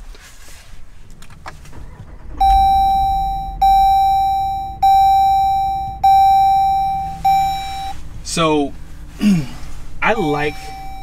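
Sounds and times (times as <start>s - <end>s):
bell-like warning chime: 2.4s - 8.0s, 10.1s - 11.0s.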